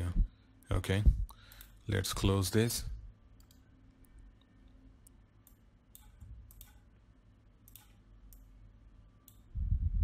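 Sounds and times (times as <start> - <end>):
low steady hum: 0.0 - 10.0
faint computer mouse clicks: 4.4 - 6.8, 7.6 - 8.5.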